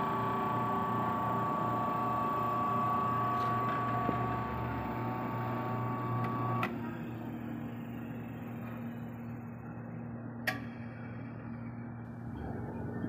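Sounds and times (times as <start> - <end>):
electric motor humming: 0.0 - 6.6.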